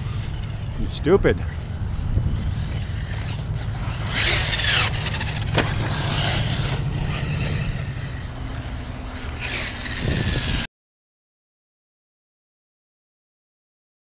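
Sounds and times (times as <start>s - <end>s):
rc truck motor revving and whining: 0.0s - 10.7s
landing thump: 5.5s - 5.9s.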